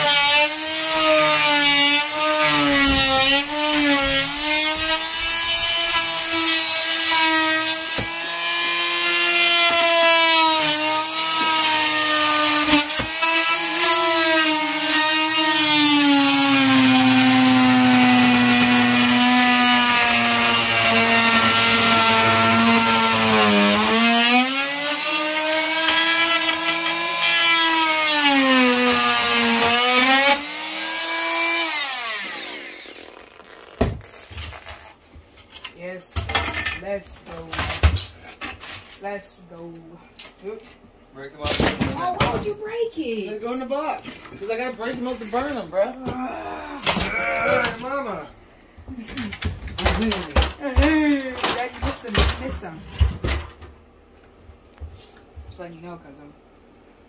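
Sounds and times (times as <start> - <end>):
multi-tool cutting wood: 0.0 - 35.0, 46.8 - 48.0.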